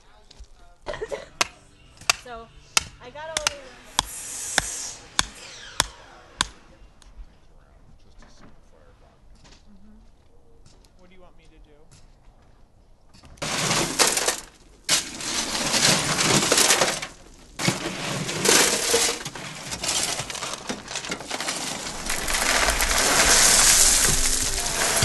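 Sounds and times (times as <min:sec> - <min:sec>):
gravel tipped into wheelbarrow: 0:13.4 - 0:25.0
shovels digging gravel: 0:13.4 - 0:25.0.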